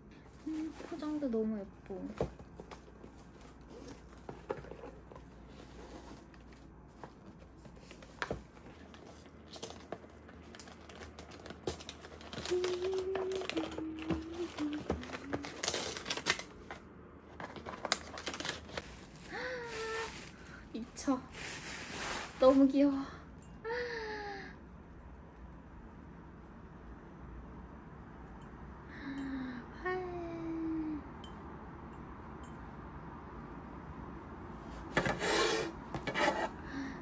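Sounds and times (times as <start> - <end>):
gift wrapping rustling and crinkling: 0.2 - 23.0.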